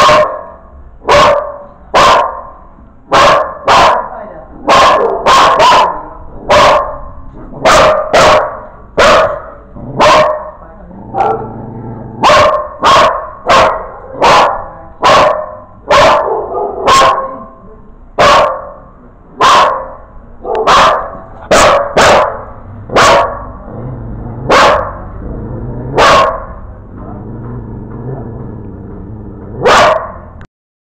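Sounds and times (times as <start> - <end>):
dog barking: 0.0 - 10.6, 11.2 - 11.6, 12.2 - 17.6, 18.2 - 23.6, 24.5 - 25.1, 26.0 - 26.6, 29.6 - 30.4.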